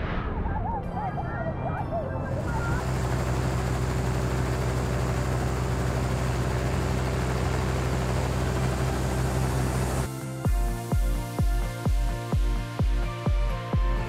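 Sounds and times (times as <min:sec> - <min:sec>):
helicopter cabin drone: 0:02.0 - 0:12.8.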